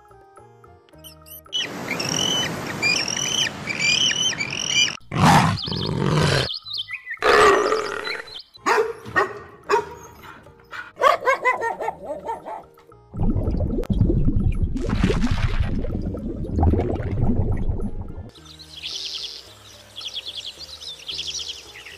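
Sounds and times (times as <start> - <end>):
high repeated chirping calls: 1.0 - 8.8.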